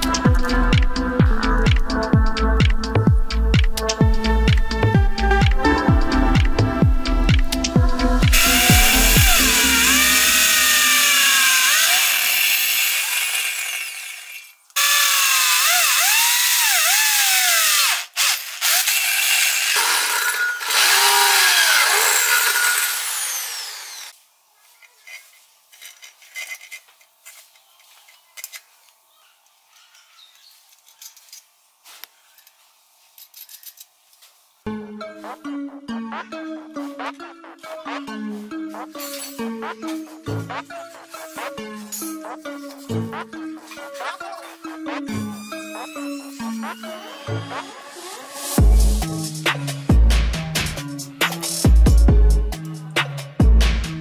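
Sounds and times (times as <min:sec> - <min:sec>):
electric drill squealing: 0:08.3 - 0:24.1, 0:45.1 - 0:48.6.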